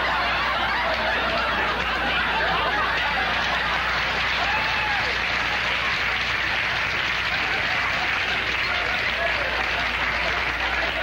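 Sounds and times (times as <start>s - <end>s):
studio audience laughing: 0.0s - 11.0s.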